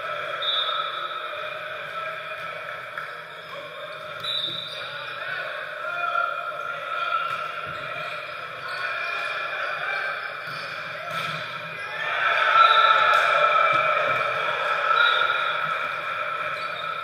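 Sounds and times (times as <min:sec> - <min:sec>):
gym hall din: 0:00.0 - 0:17.0
volleyball hits: 0:10.4 - 0:11.7, 0:12.6 - 0:16.2.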